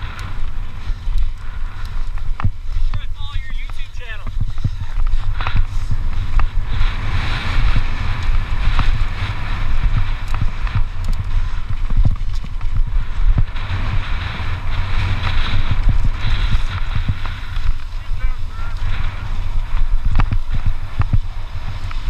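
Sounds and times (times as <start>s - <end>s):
bike knocking and rattling: 0.0s - 22.0s
tyres hissing over loose dirt: 0.0s - 22.0s
wind buffeting microphone: 0.0s - 22.0s.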